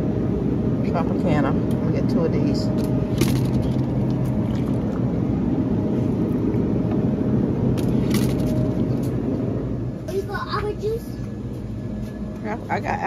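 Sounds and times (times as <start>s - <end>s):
refrigerated case rumbling: 2.7s - 5.5s, 7.6s - 9.0s.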